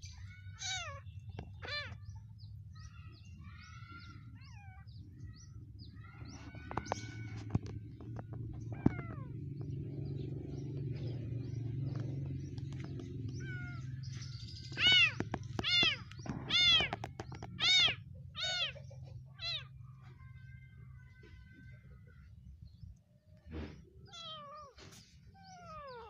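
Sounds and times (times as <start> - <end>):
kitten mewing: 14.8 - 19.7, 23.7 - 24.8.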